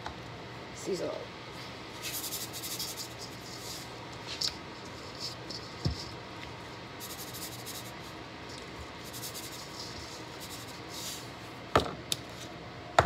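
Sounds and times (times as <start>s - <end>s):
seasoning shaken from container: 2.0s - 3.9s, 7.0s - 8.2s, 9.0s - 11.2s.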